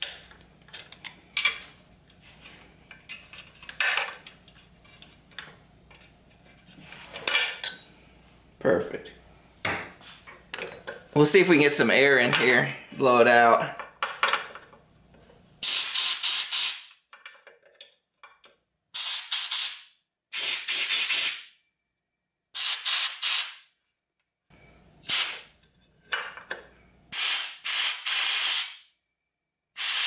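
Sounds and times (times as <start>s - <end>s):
compressed air blow gun hissing: 19.0s - 19.8s, 22.6s - 23.6s, 25.1s - 25.4s, 27.2s - 28.8s, 29.8s - 30.0s.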